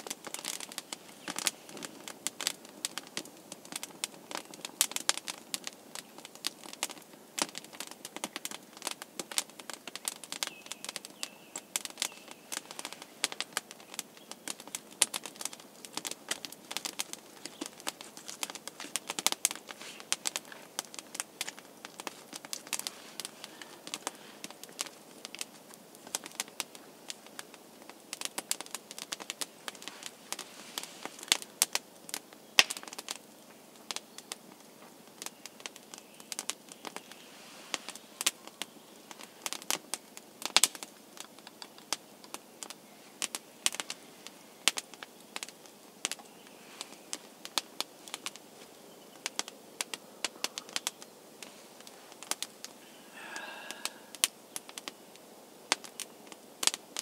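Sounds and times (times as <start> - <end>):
campfire crackling and popping: 0.0 - 57.0.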